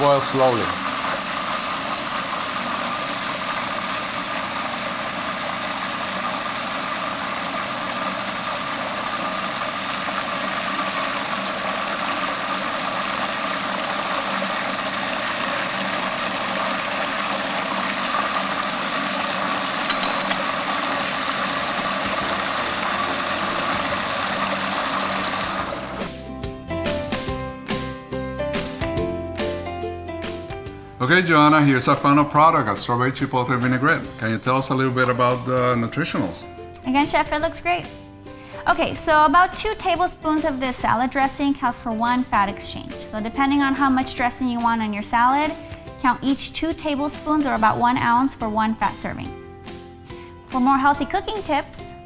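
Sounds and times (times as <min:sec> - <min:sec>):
music: 0:00.0 - 0:00.8, 0:19.7 - 0:52.0
food processor motor whining: 0:00.0 - 0:26.3.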